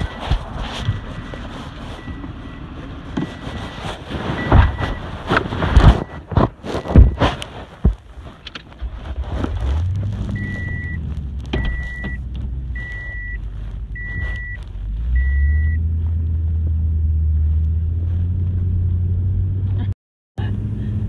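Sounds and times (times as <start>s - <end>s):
vehicle engine rumbling: 0.0s - 21.0s
electronic beeps: 10.3s - 11.0s, 11.6s - 14.6s, 15.2s - 15.8s.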